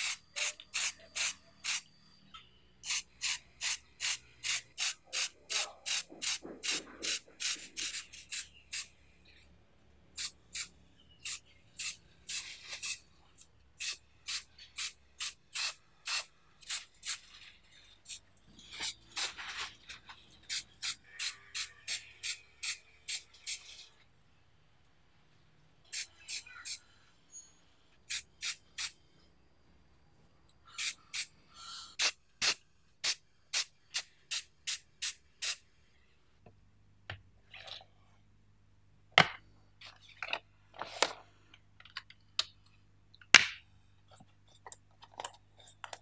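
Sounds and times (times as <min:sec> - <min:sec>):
spray can hissing bursts: 0:00.0 - 0:01.9, 0:02.8 - 0:08.9, 0:10.2 - 0:13.1, 0:13.8 - 0:17.3, 0:18.8 - 0:19.4, 0:20.4 - 0:23.6, 0:25.9 - 0:26.8, 0:28.1 - 0:29.0, 0:30.8 - 0:31.3, 0:32.0 - 0:35.6.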